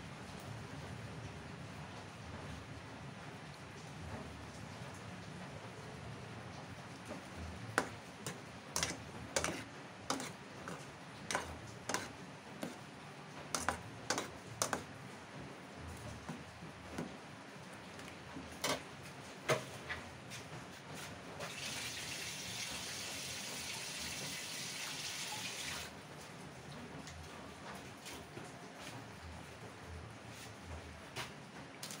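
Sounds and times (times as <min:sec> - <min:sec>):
metal spoon scraping saucepan: 0:08.8 - 0:12.8, 0:13.6 - 0:14.8.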